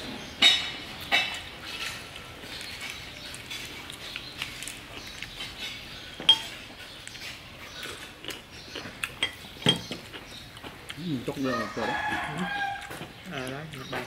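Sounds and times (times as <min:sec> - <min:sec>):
spoon clinking against bowl: 0:06.3 - 0:06.6.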